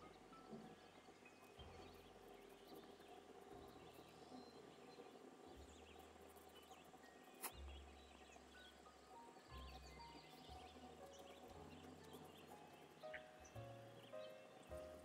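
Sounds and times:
faint soft background music: 0.0s - 15.0s.

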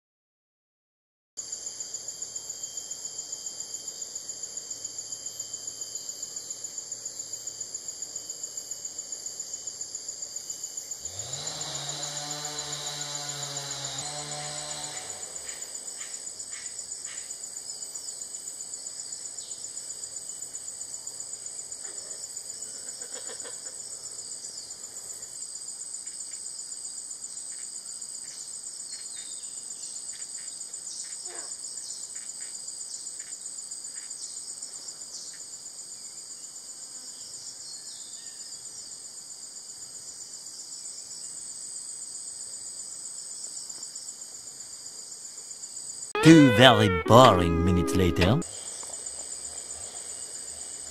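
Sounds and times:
insect chorus buzzing drone: 1.4s - 23.0s, 23.7s - 46.1s, 48.6s - 50.9s
short calls: 46.2s - 48.4s.

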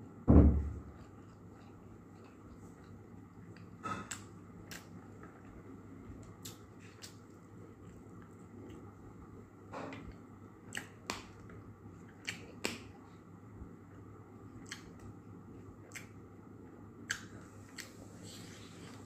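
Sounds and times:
low room hum: 0.0s - 19.0s
eating clicks and smacks: 1.0s - 5.6s, 6.2s - 8.9s, 10.0s - 13.0s, 14.6s - 15.2s, 15.8s - 16.3s, 17.0s - 18.0s.

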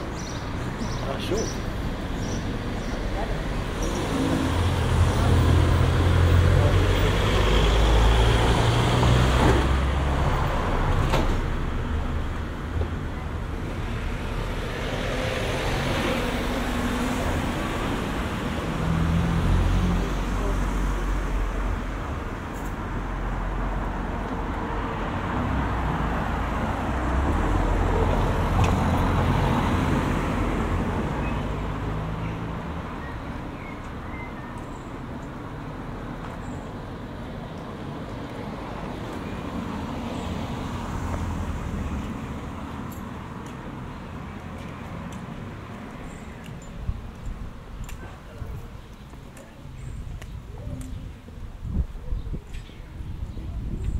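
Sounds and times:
cars passing: 0.0s - 51.8s.

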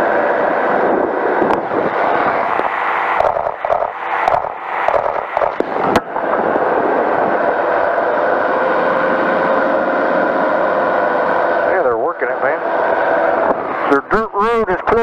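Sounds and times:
wind buffeting microphone: 0.0s - 11.6s
engine and propeller droning: 0.0s - 15.0s.

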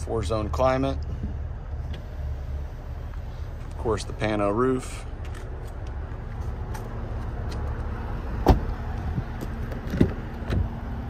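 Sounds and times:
steady low rumble: 0.0s - 11.0s
car door shutting thud: 8.4s - 8.7s.

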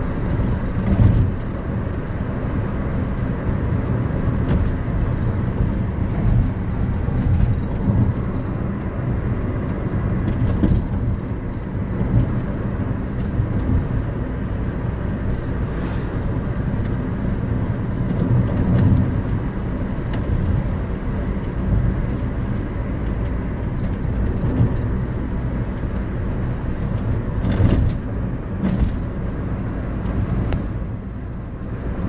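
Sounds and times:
car road noise at highway speed: 0.0s - 32.0s.

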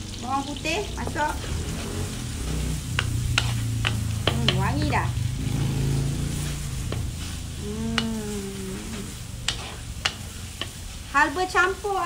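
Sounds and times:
onions sizzling in hot oil: 0.0s - 12.0s
low hum: 1.4s - 9.8s
wooden spatula ticking against pan: 3.0s - 5.0s, 9.5s - 10.8s.

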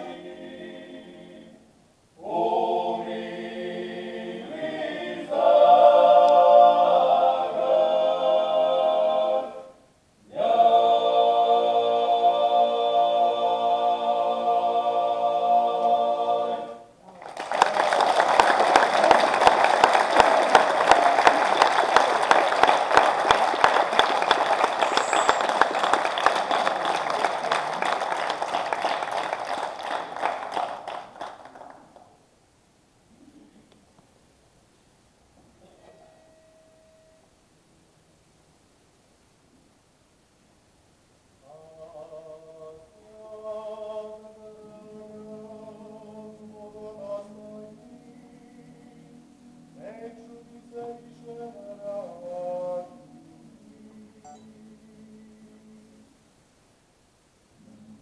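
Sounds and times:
male choir singing in harmony: 0.0s - 16.9s, 41.4s - 56.1s
audience applauding: 17.1s - 32.2s.

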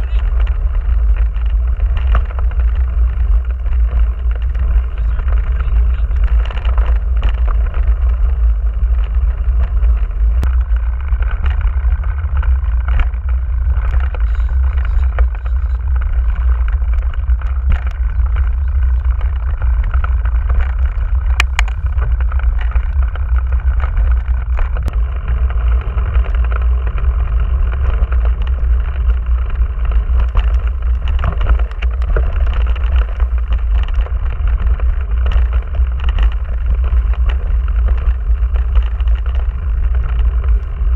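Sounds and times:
bike tyres rumbling on dirt: 0.0s - 40.9s
small clicks and knocks: 9.0s - 40.9s.

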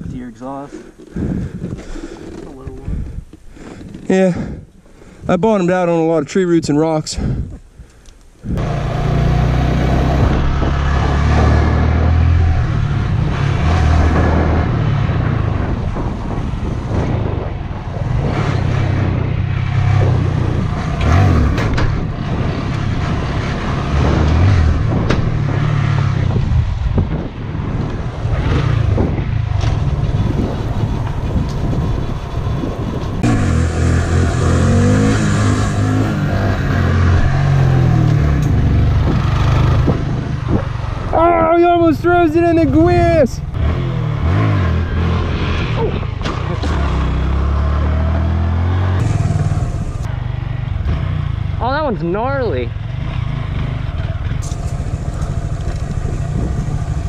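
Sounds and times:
motorcycle engine running: 14.1s - 41.6s, 42.5s - 57.0s.

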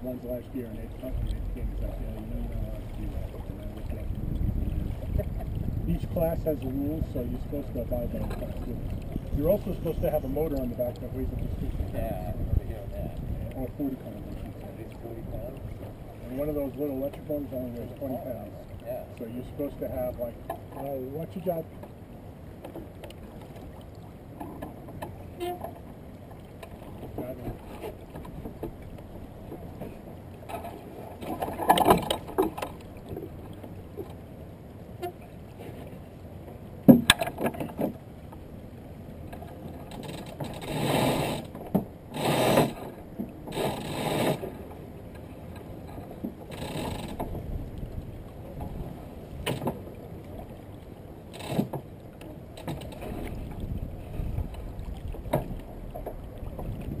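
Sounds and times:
water wash: 0.0s - 21.9s
boat knocks: 0.0s - 34.2s, 35.0s - 38.6s, 39.2s - 57.0s
water splashes: 0.0s - 57.0s
wind: 0.0s - 57.0s.

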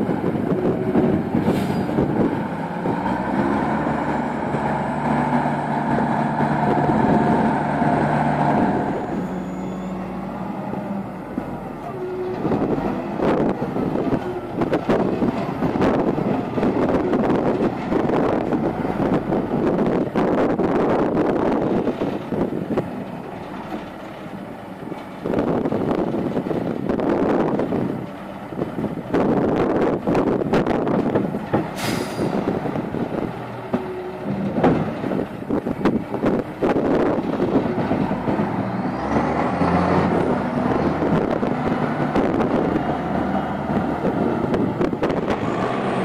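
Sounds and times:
diesel engine working hard: 0.0s - 46.0s
short hiss: 31.8s - 32.3s.

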